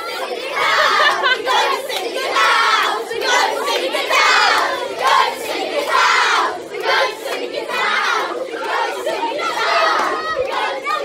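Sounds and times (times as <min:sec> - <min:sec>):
children chanting together: 0:00.0 - 0:11.0.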